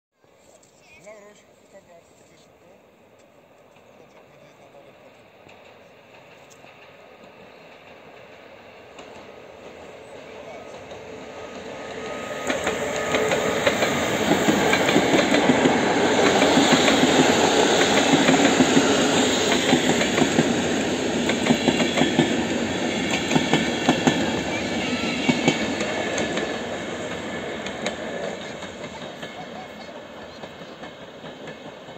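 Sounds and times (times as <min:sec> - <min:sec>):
train wheels rumbling on rail: 0:03.1 - 0:31.9
clacks over rail joints: 0:05.4 - 0:09.8, 0:25.3 - 0:31.9.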